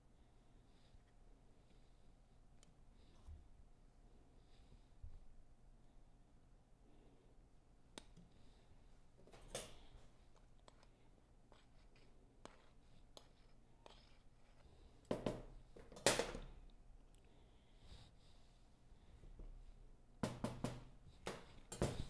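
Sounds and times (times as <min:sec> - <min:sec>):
spoon scraping a container: 0:11.5 - 0:14.7.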